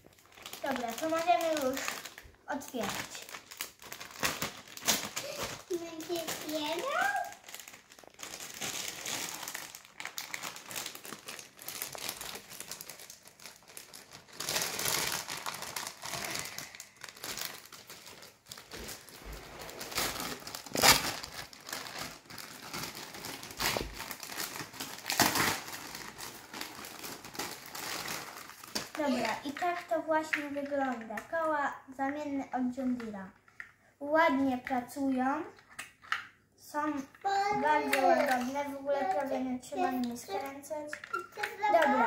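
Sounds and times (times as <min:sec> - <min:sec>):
plastic bag crinkling: 0:00.0 - 0:31.1, 0:37.3 - 0:42.0.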